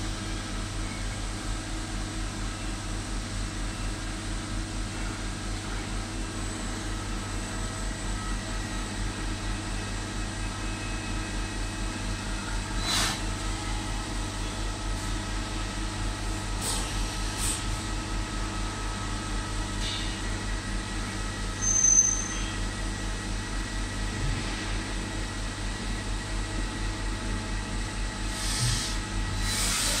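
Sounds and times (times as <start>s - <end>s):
milling machine hum: 20.2s - 30.0s
high squeak: 21.6s - 22.6s
machine whines: 21.6s - 22.8s, 28.2s - 30.0s.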